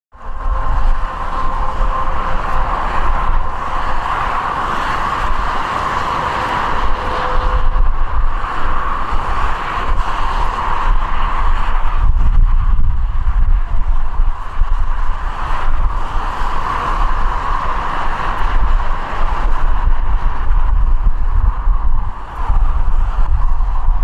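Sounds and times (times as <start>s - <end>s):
turboprop airliner drone and whine: 0.1s - 24.0s
wind buffeting microphone: 0.1s - 24.0s.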